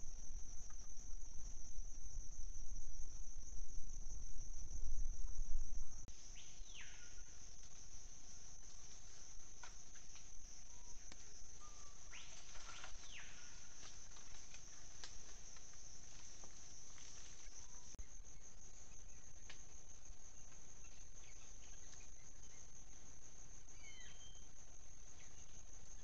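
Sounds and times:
faint ticks: 0:11.0 - 0:11.4, 0:13.8 - 0:17.6.

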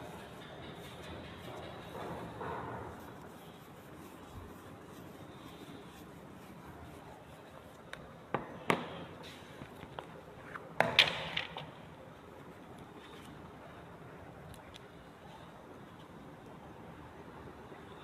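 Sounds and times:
eraser rubbing on whiteboard: 0:00.8 - 0:07.6.

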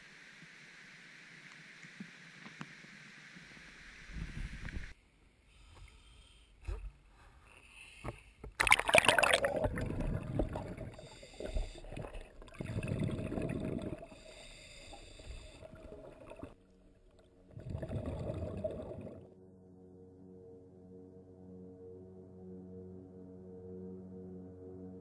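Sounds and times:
diver's breath bubbling: 0:08.6 - 0:16.6, 0:17.5 - 0:19.3
water splashing: 0:08.6 - 0:19.3
muffled underwater sound: 0:08.8 - 0:16.6.

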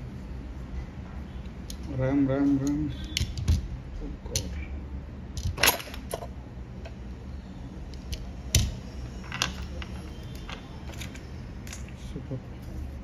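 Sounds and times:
metal tools clicking and tapping: 0:07.9 - 0:12.0.

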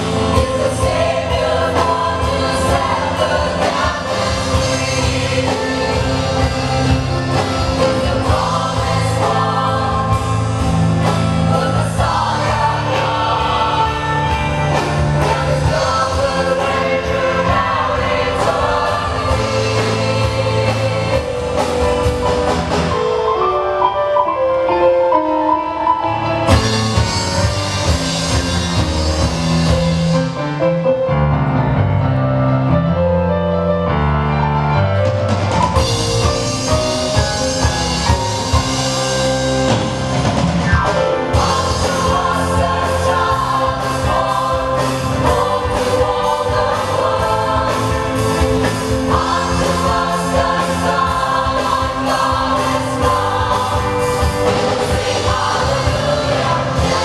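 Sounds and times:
choir singing gospel song: 0:00.0 - 0:23.3, 0:40.9 - 0:57.0
backing band: 0:00.0 - 0:57.0.

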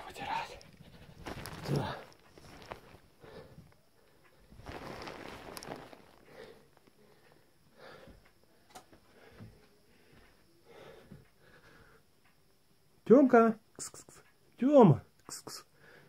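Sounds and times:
faint rustling: 0:00.1 - 0:08.3.

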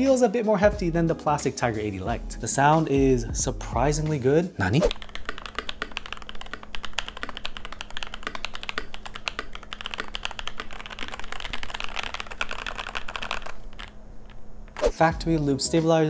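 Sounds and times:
mechanical keyboard typing: 0:04.9 - 0:14.0.

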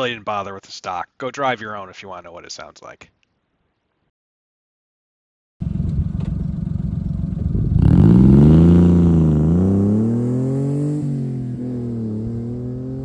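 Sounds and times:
truck engine accelerating: 0:05.6 - 0:13.0.

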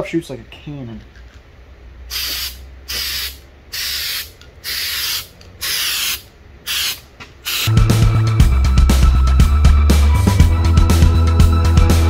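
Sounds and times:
aerosol can spraying: 0:02.1 - 0:07.8.

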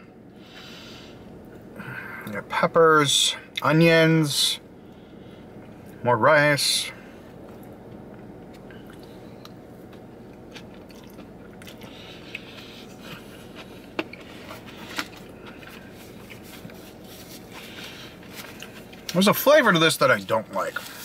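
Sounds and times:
steady low hum: 0:00.0 - 0:21.0
person chewing food: 0:07.4 - 0:19.1
mouth clicks and crunches: 0:07.5 - 0:16.4.

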